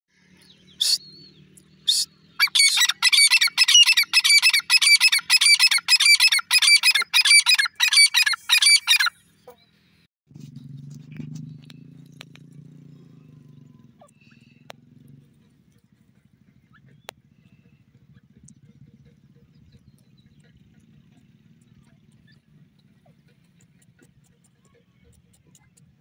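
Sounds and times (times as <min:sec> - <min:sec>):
francolin calling: 0:00.7 - 0:09.6.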